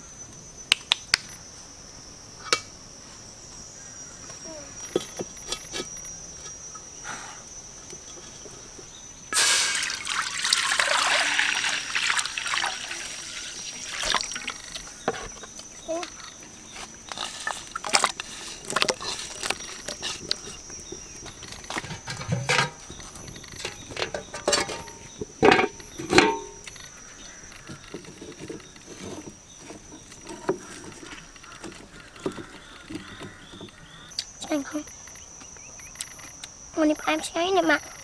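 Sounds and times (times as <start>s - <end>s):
high insect drone: 0.0s - 38.0s
clinks and knocks at a wok: 20.0s - 26.9s.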